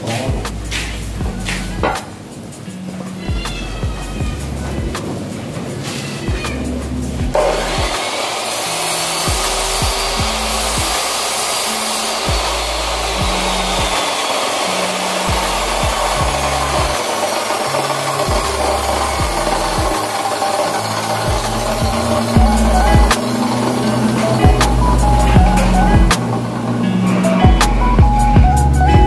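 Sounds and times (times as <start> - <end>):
background music with bass: 0.0 - 8.0, 9.1 - 29.0
chop saw grinding steel: 7.3 - 28.0.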